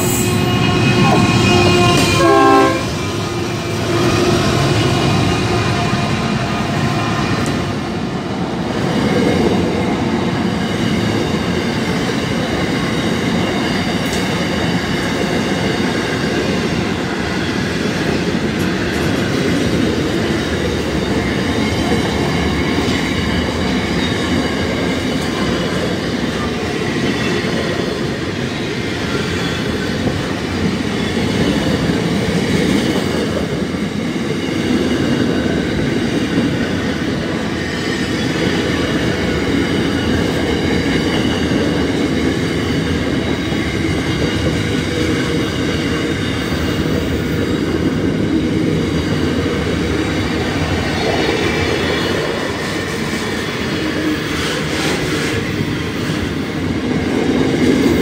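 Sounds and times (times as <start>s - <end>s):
rumble of train wheels on rail: 0.0s - 58.0s.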